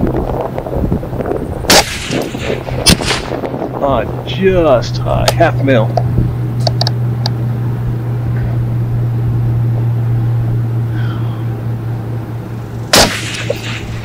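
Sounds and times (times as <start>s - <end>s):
steady low hum: 0.0s - 14.0s
suppressed rifle shot: 1.7s - 3.5s, 12.9s - 14.0s.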